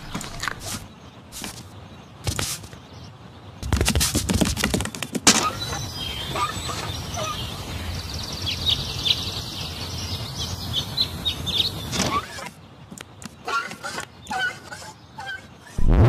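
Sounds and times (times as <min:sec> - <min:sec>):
small birds chirping: 0:00.0 - 0:15.8
low background rumble: 0:15.8 - 0:16.0.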